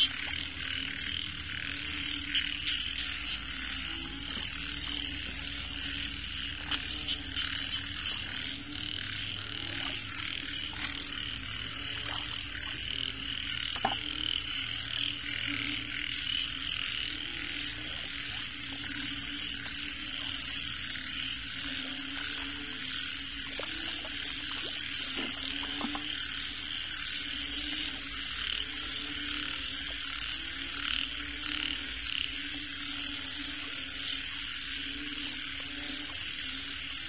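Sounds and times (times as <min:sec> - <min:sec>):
chorus of frogs calling: 0:00.0 - 0:37.0
low continuous calling: 0:00.0 - 0:37.0.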